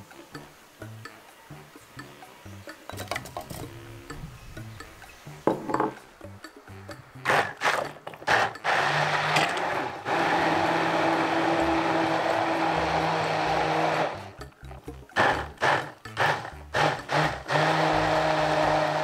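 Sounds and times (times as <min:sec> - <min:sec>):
stick blender blending liquid: 0:07.2 - 0:14.4, 0:15.2 - 0:19.0.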